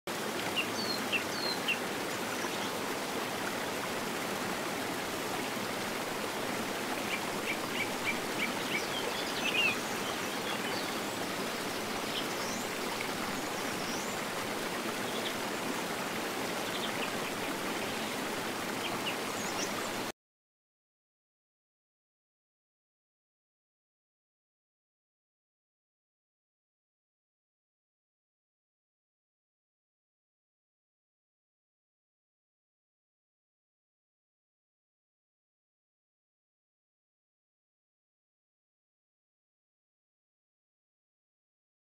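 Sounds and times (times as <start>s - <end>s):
running water rushing: 0.1s - 20.1s.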